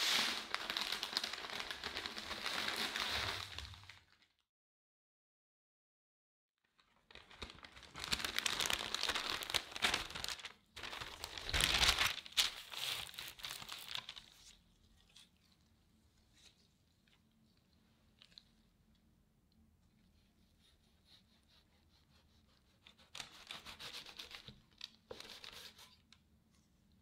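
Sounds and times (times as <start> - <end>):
baking paper crinkling: 0.0 - 4.2, 6.7 - 15.4, 22.5 - 26.0.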